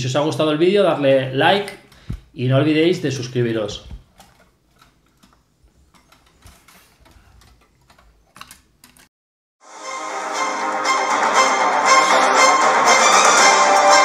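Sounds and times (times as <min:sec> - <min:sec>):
string music: 0:09.6 - 0:14.0.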